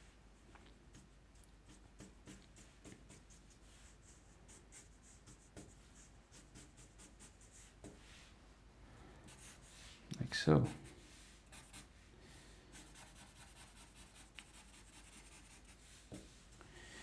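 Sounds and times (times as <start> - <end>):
marker pen scratching on paper: 0.9 - 8.0, 10.7 - 11.9, 12.7 - 16.4.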